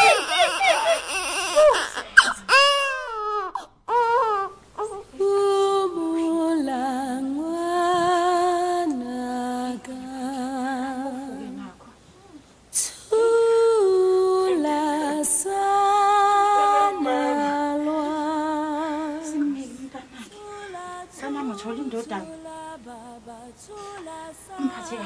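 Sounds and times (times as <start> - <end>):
woman singing long wavering notes: 5.1 - 11.7, 12.8 - 25.0.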